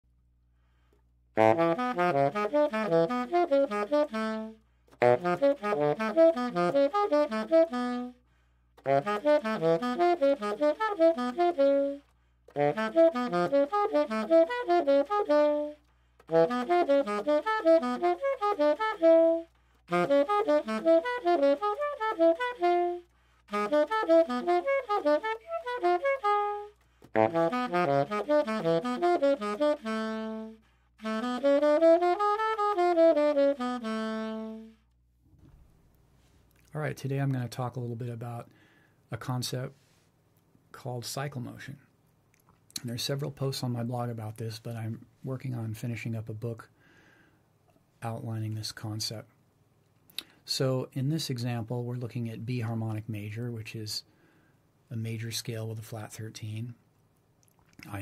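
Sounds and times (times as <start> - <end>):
tenor saxophone playing: 1.4 - 8.2, 8.8 - 35.0.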